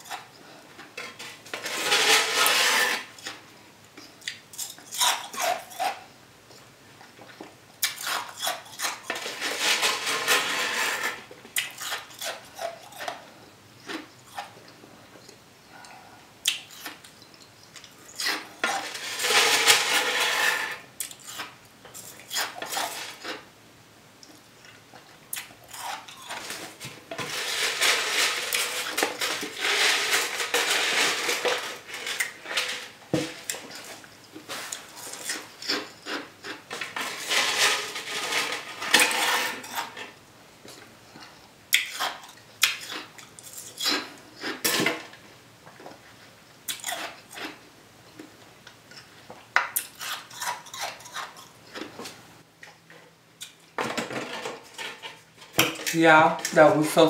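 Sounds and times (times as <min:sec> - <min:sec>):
utensil scraping a dish: 0:01.0 - 0:03.4, 0:07.9 - 0:13.2, 0:18.2 - 0:23.4, 0:25.7 - 0:40.2.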